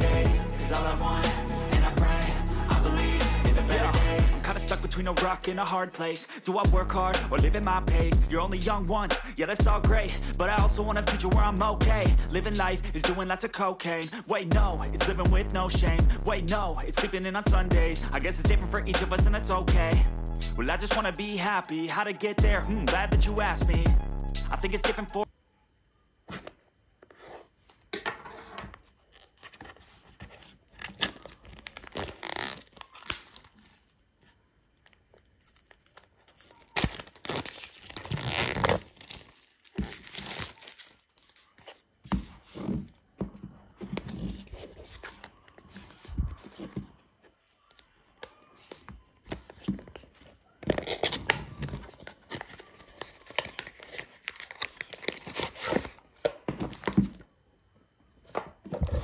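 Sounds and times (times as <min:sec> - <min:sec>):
plastic wrap tearing: 0:29.0 - 0:34.1, 0:34.8 - 0:41.9, 0:50.7 - 0:56.1
plastic bag crinkling: 0:29.0 - 0:42.6, 0:50.8 - 0:57.2.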